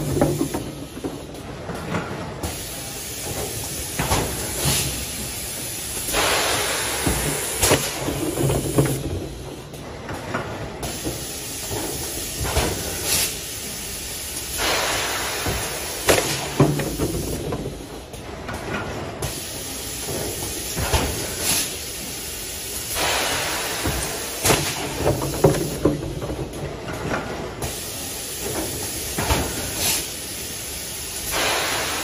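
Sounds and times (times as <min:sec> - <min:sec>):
compressed air hissing: 0:02.4 - 0:09.1, 0:10.8 - 0:17.5, 0:19.2 - 0:25.8, 0:27.6 - 0:32.0.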